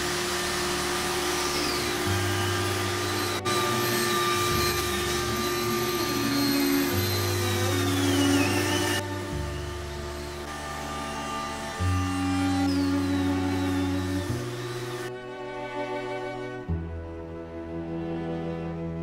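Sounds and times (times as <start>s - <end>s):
angle grinder sanding wood: 0.0s - 15.1s.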